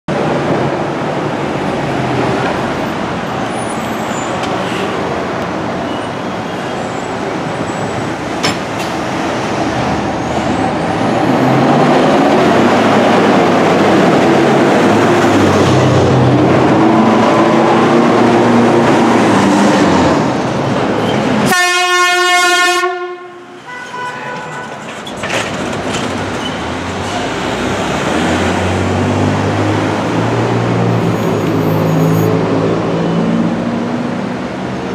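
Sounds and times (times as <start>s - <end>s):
emergency vehicles driving past: 0.1s - 34.9s
vehicle horn blast: 21.5s - 24.6s.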